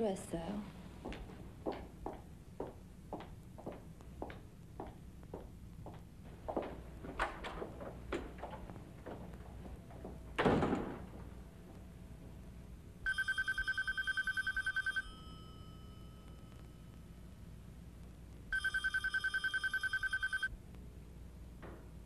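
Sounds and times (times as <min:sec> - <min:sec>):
telephone ringing: 0:13.0 - 0:16.9, 0:18.5 - 0:20.5.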